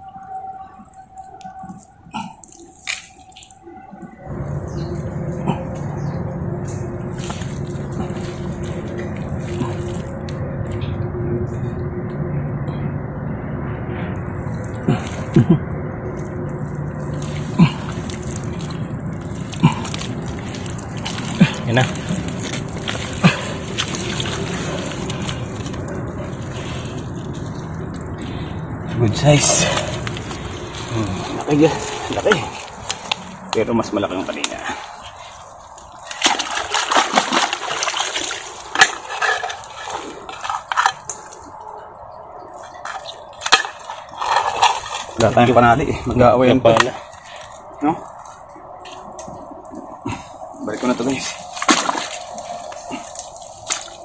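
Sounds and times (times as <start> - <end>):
mud and water squelching: 0.0 - 12.1, 14.1 - 54.0.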